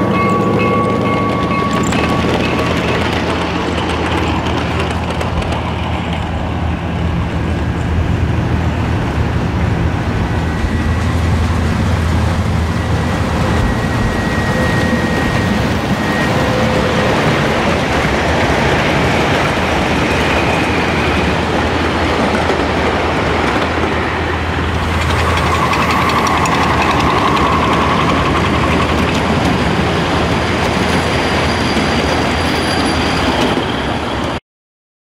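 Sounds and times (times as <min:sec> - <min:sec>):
train wheels rumbling on rail: 0:00.0 - 0:34.4
wheels clicking over rail joints: 0:00.2 - 0:06.4, 0:24.7 - 0:32.2
wheel squeal: 0:12.7 - 0:18.0, 0:24.8 - 0:34.4.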